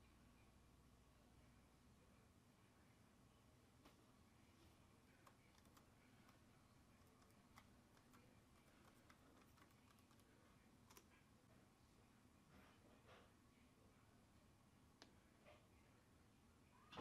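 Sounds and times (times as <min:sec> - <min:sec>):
laptop keyboard typing: 0:05.1 - 0:06.4, 0:07.0 - 0:10.3.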